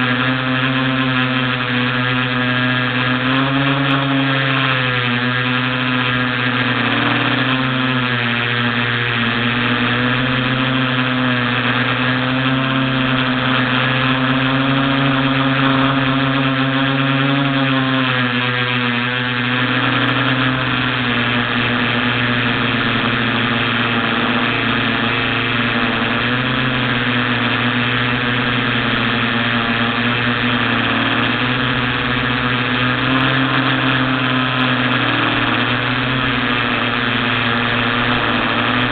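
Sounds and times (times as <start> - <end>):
quadcopter motors humming: 0.0 - 38.9.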